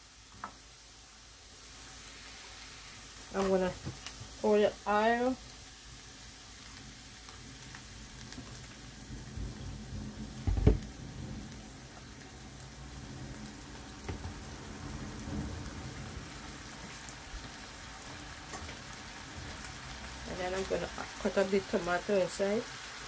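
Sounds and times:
shrimp sizzling in a frying pan: 0.0 - 23.0
knocks: 10.4 - 10.9.

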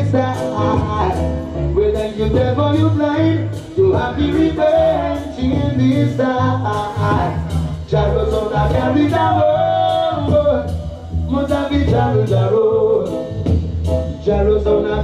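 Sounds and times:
song with vocals and heavy bass: 0.0 - 15.0.

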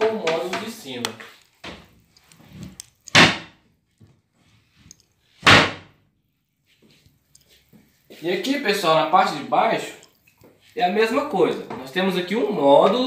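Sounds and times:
cabinet doors banging shut: 3.1 - 3.6, 5.4 - 5.9.

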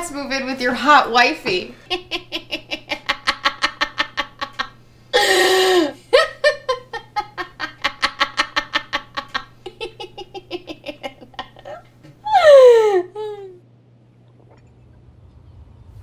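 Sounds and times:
woman laughing: 1.8 - 13.6
woman shrieking laugh: 11.6 - 13.6.

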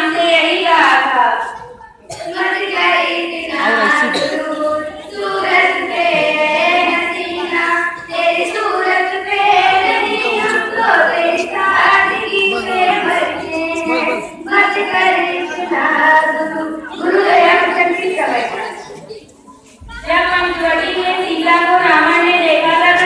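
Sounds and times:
girl singing into a microphone: 0.0 - 19.2, 19.8 - 23.0.

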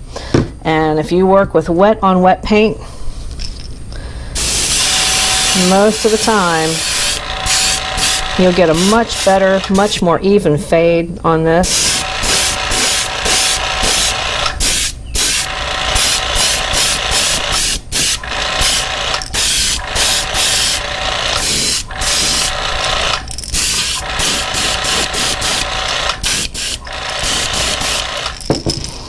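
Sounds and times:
airbrush hissing bursts: 4.3 - 10.0, 11.6 - 28.4.

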